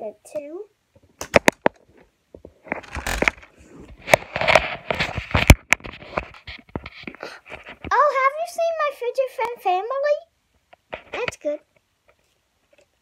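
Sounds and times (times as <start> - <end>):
rustling and scraping on microphone: 1.0 - 8.1, 10.8 - 12.9.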